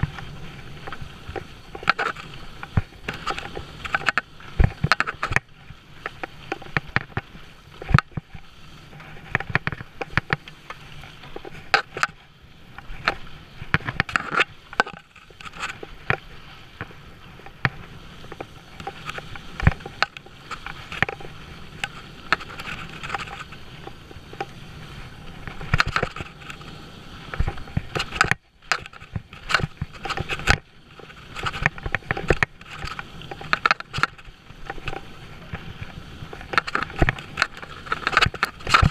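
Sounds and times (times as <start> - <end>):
bike tyres on loose dirt: 0.0 - 38.9
bike knocks and rattles: 27.3 - 38.9.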